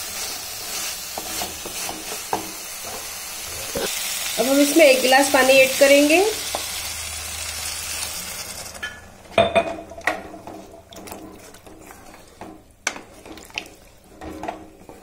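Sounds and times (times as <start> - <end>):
water sizzling in hot pan: 0.0 - 9.0
wooden spatula scraping a pan: 0.2 - 3.9, 10.2 - 15.0.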